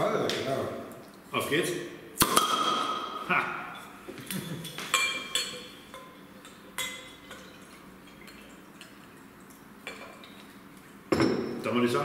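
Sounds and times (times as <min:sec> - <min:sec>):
glass clinks: 0:03.7 - 0:06.2, 0:11.1 - 0:11.6.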